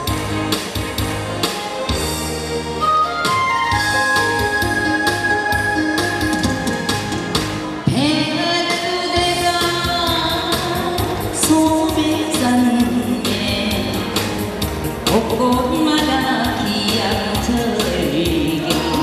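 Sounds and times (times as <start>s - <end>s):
recorded backing track: 0.0s - 19.0s
woman singing into a microphone: 7.8s - 14.4s, 15.1s - 19.0s.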